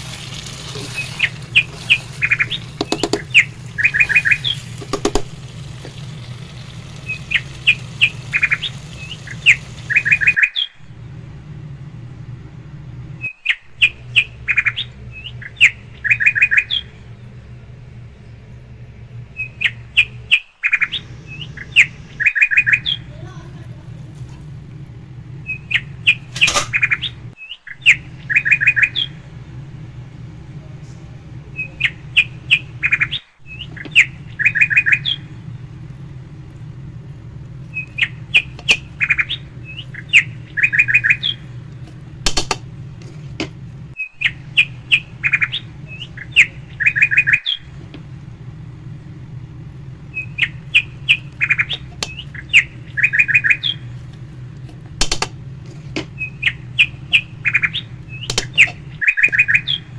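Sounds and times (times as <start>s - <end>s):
steady low hum: 0.0s - 59.9s
bird chirping and trilling: 0.1s - 10.8s, 13.2s - 17.2s, 19.3s - 23.2s, 25.4s - 29.3s, 31.6s - 35.5s, 37.6s - 42.0s, 43.9s - 47.8s, 50.0s - 59.9s.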